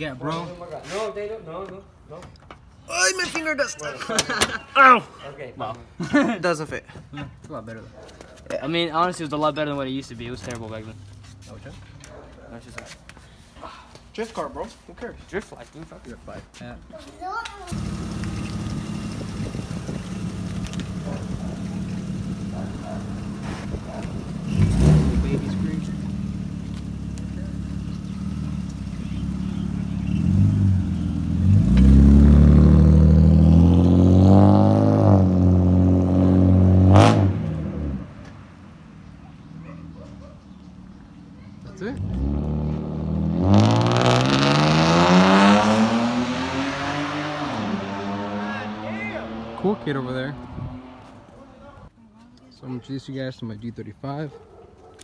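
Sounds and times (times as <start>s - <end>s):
car engine idling: 17.8s - 24.6s, 25.2s - 31.4s
car engine accelerating hard: 17.8s - 38.1s, 42.0s - 51.4s.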